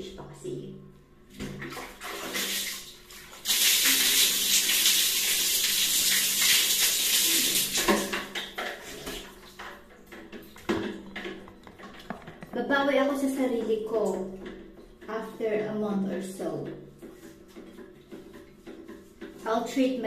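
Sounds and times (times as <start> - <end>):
water splashing on tiled floor: 1.4 - 12.4
water dripping: 1.4 - 19.4.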